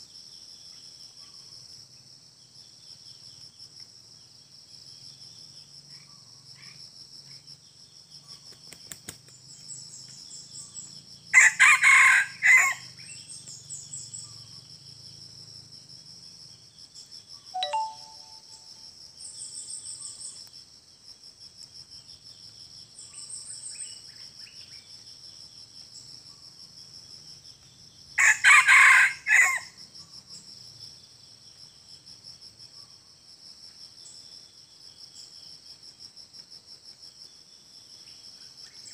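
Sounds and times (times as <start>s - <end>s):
rooster crowing: 11.4s - 12.9s, 28.2s - 29.7s.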